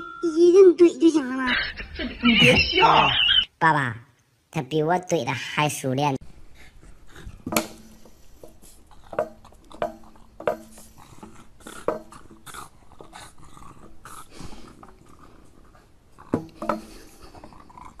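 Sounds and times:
sharp knocks: 7.4 - 8.0
small dog growling and grunting: 8.8 - 18.0.

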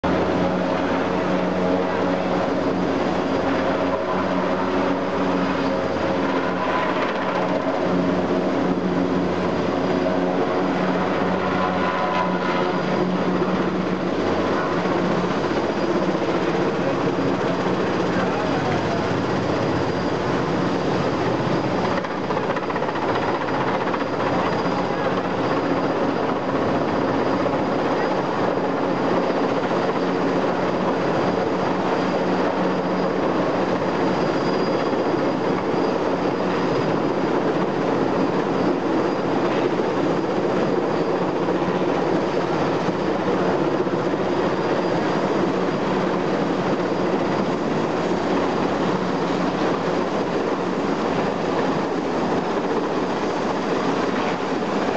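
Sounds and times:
helicopter hovering: 0.0 - 54.9.

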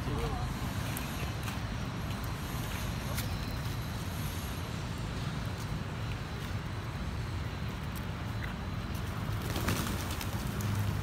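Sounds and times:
low rumble of city traffic: 0.0 - 11.0
taps and clicks on pavement: 0.8 - 2.4, 5.5 - 6.8, 7.7 - 10.9.

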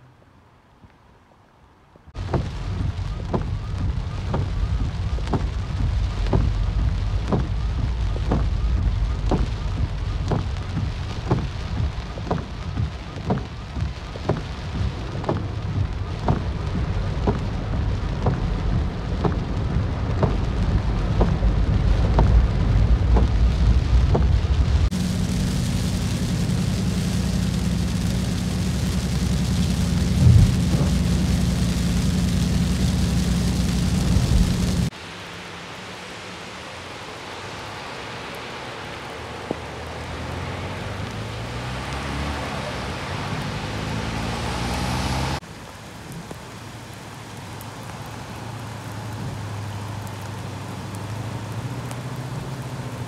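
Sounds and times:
deep low rumble: 2.1 - 34.9
heavy rain drumming on car: 2.1 - 53.0
rain hissing on glass: 2.1 - 53.0
regular ticking: 2.2 - 34.9.

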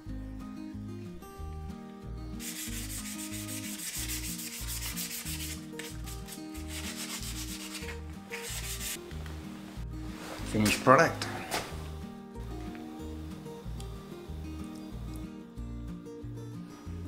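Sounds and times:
wire brush scrubbing steel: 2.4 - 9.0.

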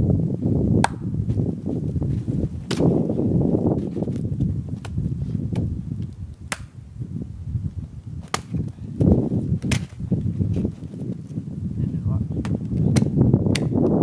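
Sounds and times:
wooden knocks and cracks: 8.2 - 10.8.

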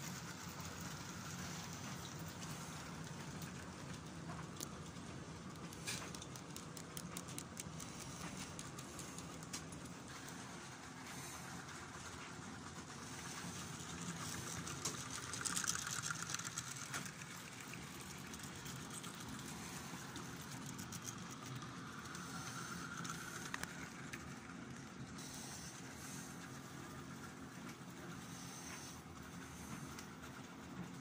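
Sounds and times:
model train motor hum: 0.0 - 31.0
wheels clicking over track: 12.6 - 25.2.

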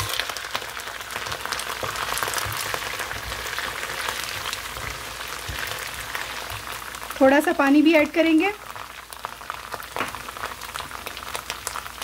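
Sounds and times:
onions sizzling in hot oil: 0.0 - 12.0
wooden spatula knocking on pan: 1.3 - 3.5.

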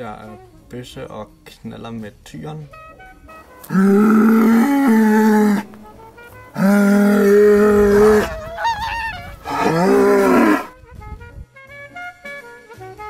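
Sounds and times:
cattle mooing: 3.6 - 10.7.

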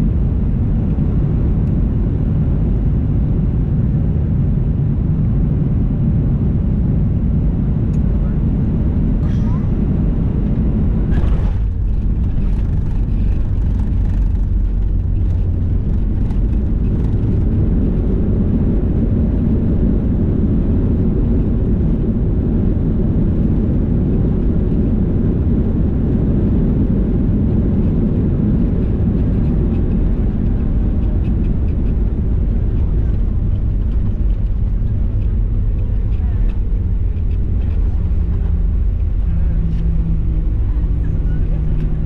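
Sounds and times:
low rumble of jet engines: 0.0 - 42.0
light cabin rattles: 10.6 - 18.6, 27.7 - 42.0.

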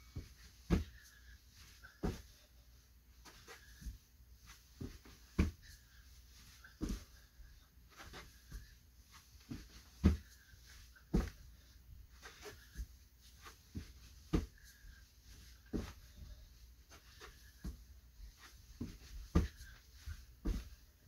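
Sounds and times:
thuds of burpees on carpet: 0.0 - 1.1, 1.9 - 2.4, 4.8 - 5.8, 6.8 - 7.2, 9.4 - 10.4, 11.0 - 11.4, 12.2 - 20.9
hard breathing: 0.0 - 21.0.

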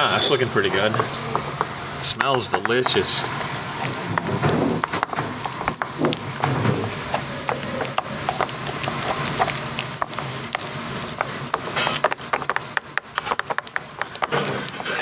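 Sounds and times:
wooden spoon knocking a bowl: 0.8 - 3.1, 11.2 - 14.9.

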